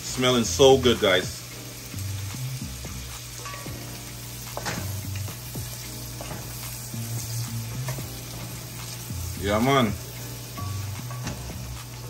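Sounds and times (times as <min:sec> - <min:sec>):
vegetables sizzling in butter: 0:00.0 - 0:12.0.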